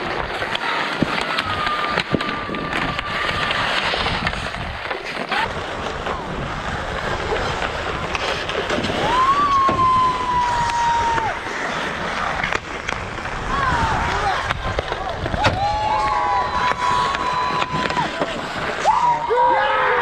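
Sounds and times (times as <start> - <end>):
hockey sticks clacking: 0.0 - 9.5, 10.4 - 19.4
skate blades scraping ice: 0.0 - 20.0
long held shout: 18.8 - 20.0.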